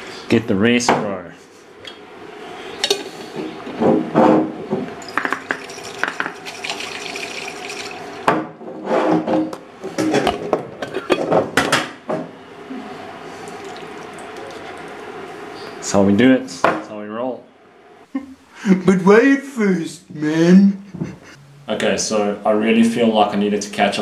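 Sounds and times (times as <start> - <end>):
glass jar clinking: 5.0 - 8.2
water sloshing in jar: 5.3 - 8.2, 13.4 - 15.1.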